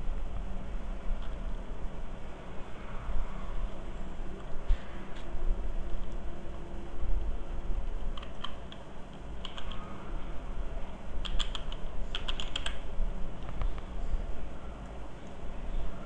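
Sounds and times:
low hum: 0.0 - 16.0
computer keyboard typing: 8.1 - 9.9, 11.2 - 12.8.

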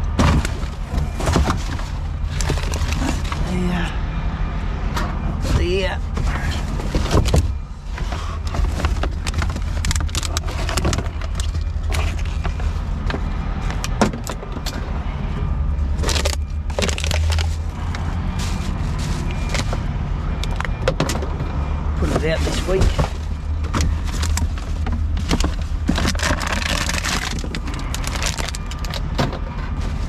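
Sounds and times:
cardboard boxes shifting: 0.1 - 3.4, 5.4 - 13.0, 16.0 - 19.9, 22.0 - 30.0
plastic bottles and bags crinkling: 0.3 - 3.5, 8.5 - 12.8, 16.0 - 20.7, 22.0 - 30.0.

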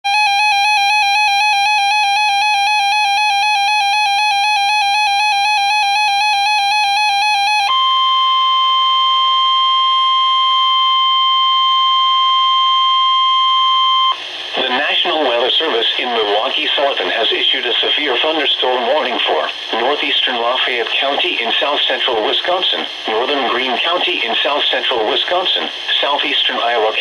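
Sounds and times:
rapidly pulsing electronic alarm: 0.1 - 14.2.

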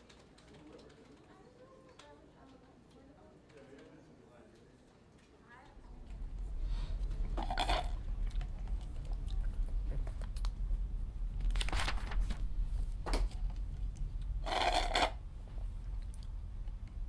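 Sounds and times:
low steady hum: 5.1 - 17.0
slurping through a straw: 14.4 - 15.2.

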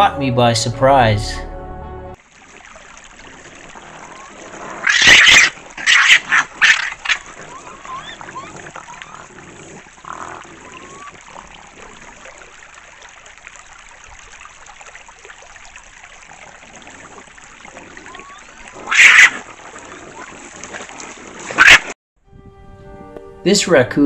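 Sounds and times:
creek trickling: 2.2 - 22.0
faint whining calls: 3.1 - 12.8, 16.0 - 21.9
raccoon snarls: 3.2 - 12.5, 16.3 - 21.9.

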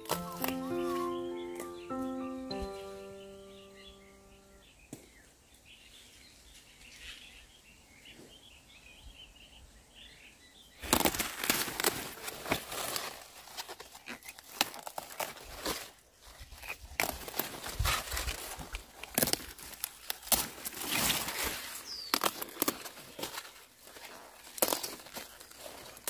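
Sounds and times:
leafy greens crackling and snapping: 0.0 - 2.7, 10.8 - 26.0
faint birds chirping: 0.0 - 11.0, 21.4 - 26.0.

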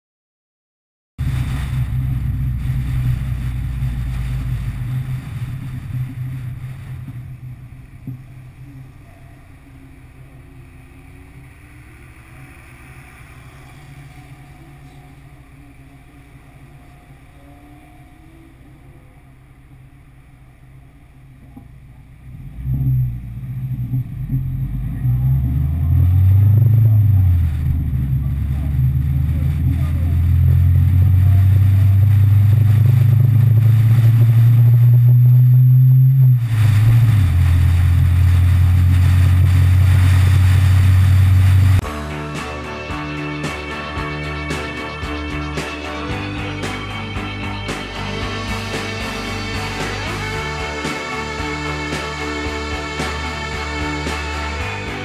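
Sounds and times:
car engine running: 1.2 - 55.0
road noise: 1.2 - 55.0.

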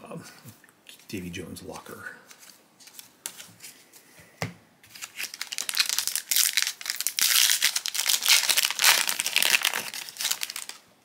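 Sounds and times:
foil wrapper crinkling: 4.9 - 10.8.

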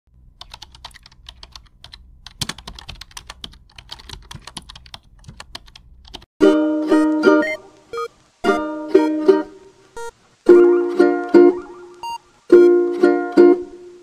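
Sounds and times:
keyboard typing clicks: 0.4 - 6.3
music: 6.4 - 14.0.

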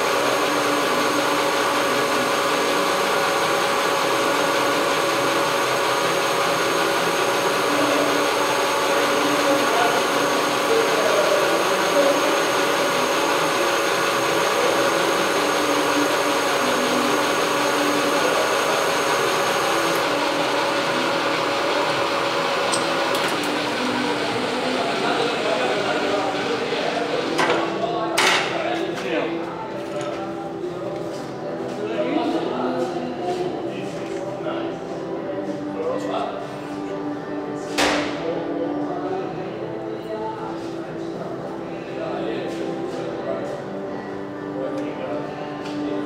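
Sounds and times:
lathe whirring: 0.0 - 28.0.

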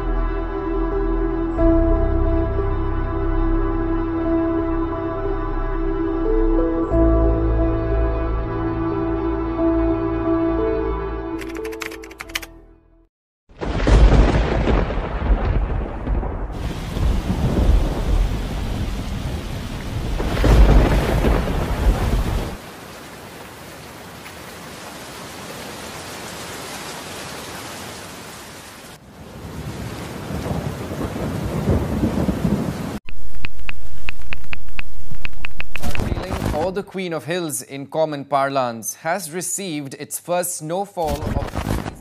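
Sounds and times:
rolling thunder: 13.6 - 22.6, 29.5 - 33.0
heavy rain: 13.6 - 36.7.

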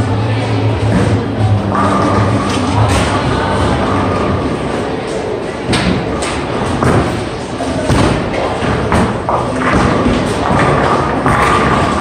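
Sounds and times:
din of bowling hall: 0.0 - 12.0
bowling balls and pins knocking: 5.6 - 12.0.

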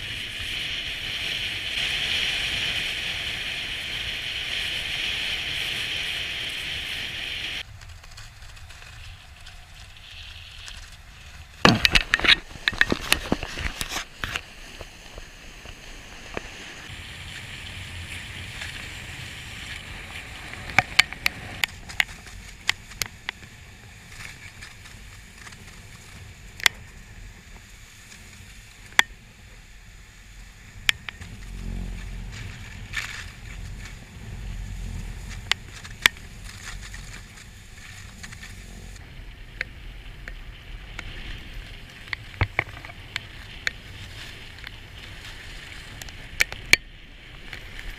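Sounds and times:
runners sliding over snow: 0.0 - 11.7, 12.3 - 46.4, 47.0 - 47.9
wind on microphone: 0.0 - 47.9
sharp clicks and knocks: 11.6 - 14.5.

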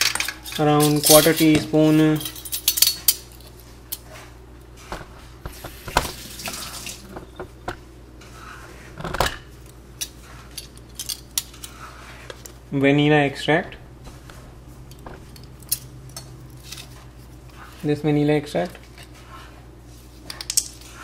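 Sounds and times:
metal measuring spoons clinking: 0.0 - 3.3.

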